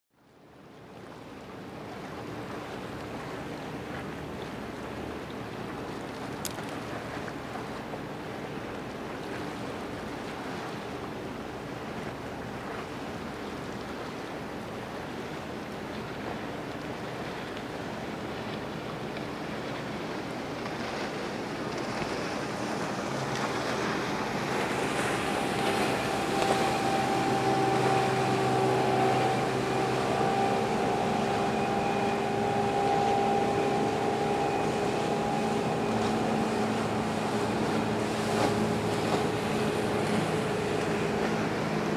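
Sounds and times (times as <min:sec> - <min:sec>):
water wash from passing ship: 0:00.5 - 0:41.9
ship engines droning: 0:22.0 - 0:41.9.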